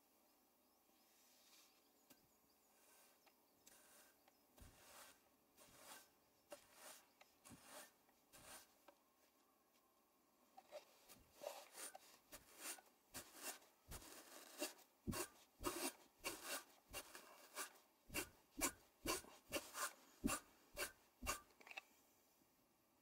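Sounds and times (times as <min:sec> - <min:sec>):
scratchy swishes of fibres combed: 0:02.8 - 0:08.8, 0:11.0 - 0:21.5.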